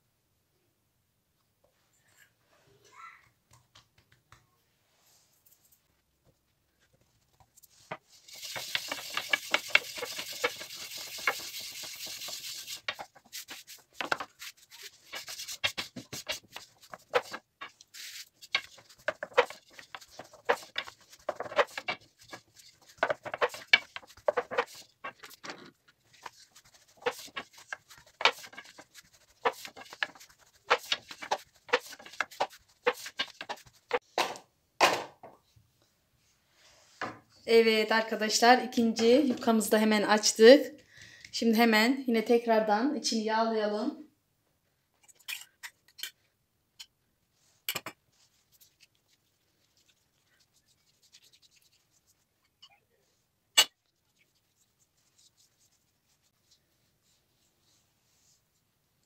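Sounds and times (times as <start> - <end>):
hands rubbing dough: 3.8 - 34.2, 47.3 - 52.5, 53.8 - 58.9.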